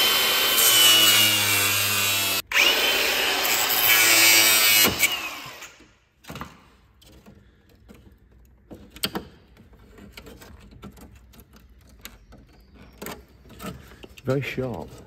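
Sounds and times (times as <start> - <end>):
plastic grille clicking and rattling: 6.9 - 15.0.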